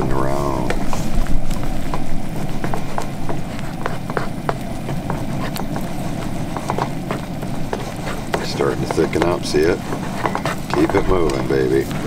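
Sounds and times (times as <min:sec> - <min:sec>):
sauce simmering and bubbling: 0:00.0 - 0:12.0.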